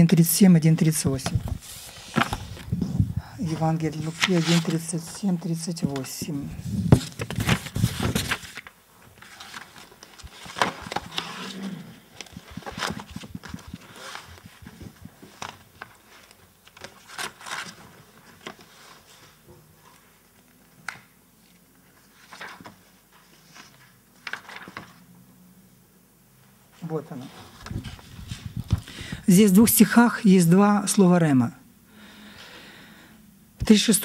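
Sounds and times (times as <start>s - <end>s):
book pages turning: 1.2s - 25.0s, 27.2s - 29.0s
paper rustling: 1.2s - 25.0s, 27.2s - 29.0s.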